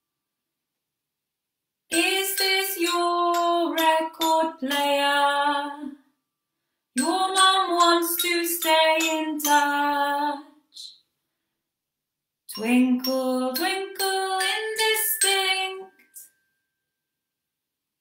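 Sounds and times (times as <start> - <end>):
woman singing unaccompanied: 1.9 - 6.0, 7.0 - 10.9, 12.5 - 16.2.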